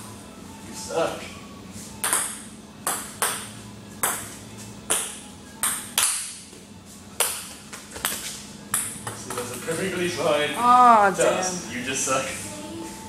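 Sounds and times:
ping-pong ball clicks: 2.0s - 4.3s, 4.9s - 6.4s, 7.2s - 10.0s.

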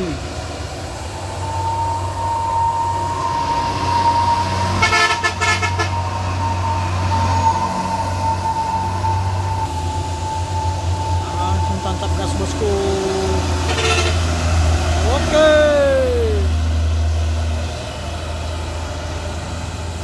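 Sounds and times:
steady high tone: 0.0s - 16.7s
diesel truck engine droning: 0.0s - 20.0s
pulsing horn burst: 1.2s - 16.5s.

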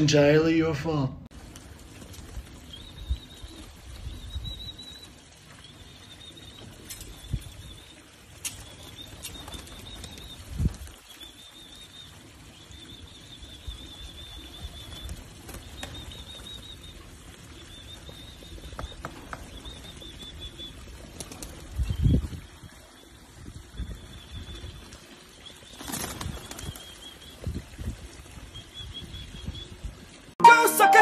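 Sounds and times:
pigeon wings flapping: 1.3s - 5.7s, 6.6s - 11.5s, 14.2s - 22.0s, 24.8s - 27.4s
high wavering trill: 30.4s - 31.0s.

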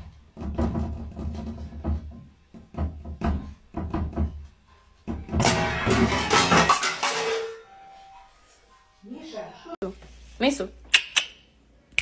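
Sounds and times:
noisy rattling and scuffling: 0.0s - 7.7s.

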